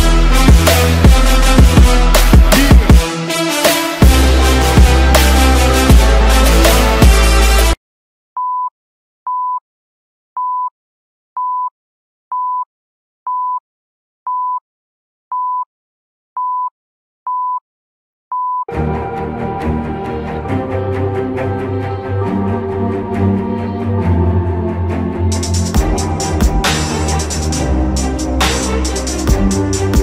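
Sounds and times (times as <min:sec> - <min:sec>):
electronic music: 0:00.0 - 0:07.8, 0:18.7 - 0:30.0.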